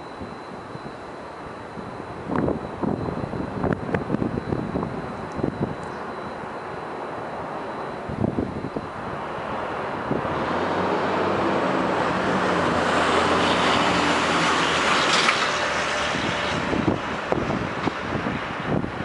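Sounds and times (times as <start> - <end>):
delivery truck driving past: 9.0 - 17.6.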